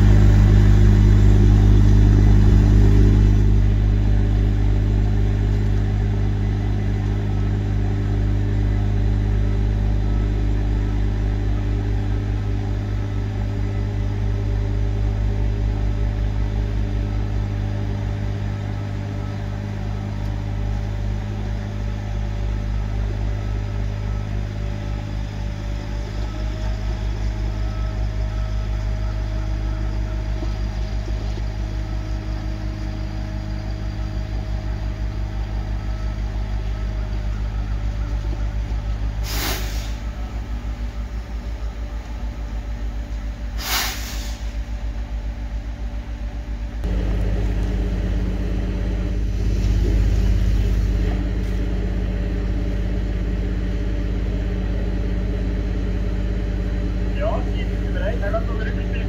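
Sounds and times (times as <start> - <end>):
locomotive engine idling: 0.0 - 59.0
air hisses: 39.2 - 40.0, 43.6 - 44.6.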